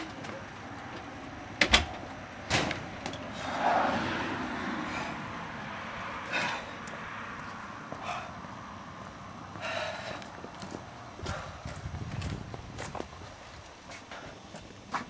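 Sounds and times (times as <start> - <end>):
storm door banging shut: 1.6 - 2.9
footsteps on concrete steps: 6.3 - 8.3, 9.0 - 15.0.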